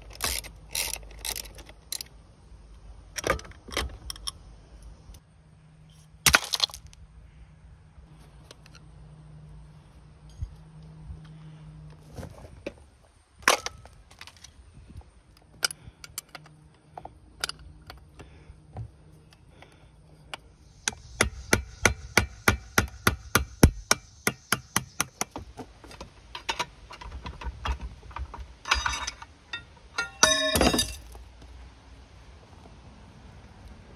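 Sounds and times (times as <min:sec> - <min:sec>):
tools and metal parts clicking: 0:00.0 - 0:02.2, 0:26.3 - 0:31.1
metal clatter: 0:26.3 - 0:31.1.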